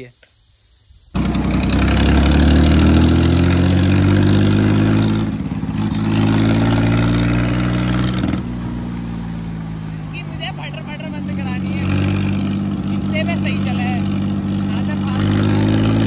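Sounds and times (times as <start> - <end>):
tractor diesel engine running: 1.2 - 16.0.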